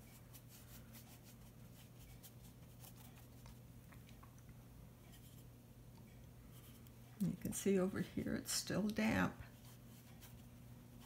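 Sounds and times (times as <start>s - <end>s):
brush ticking on damp paper: 0.0s - 3.6s, 9.5s - 11.0s.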